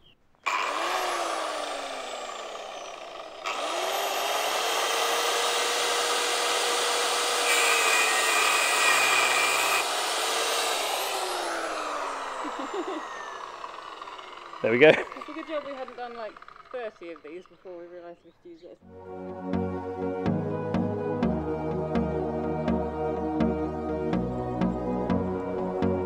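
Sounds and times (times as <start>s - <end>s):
grinder cutting steel bolt: 0.4s - 17.8s
angle grinder running: 0.4s - 18.1s.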